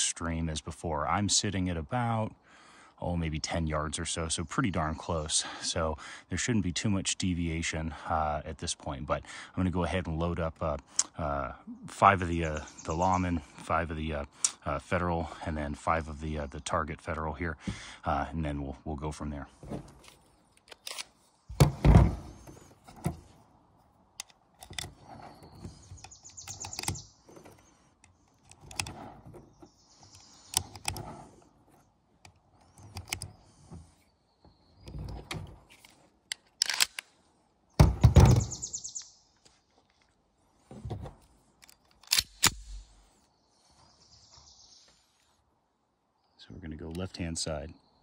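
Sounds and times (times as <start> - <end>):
rounds clicking into magazine: 20.6 - 21.2, 26.0 - 29.1, 32.2 - 33.4, 35.7 - 37.2, 41.6 - 42.9
thunks on plastic table: 21.5 - 23.2, 37.8 - 38.5.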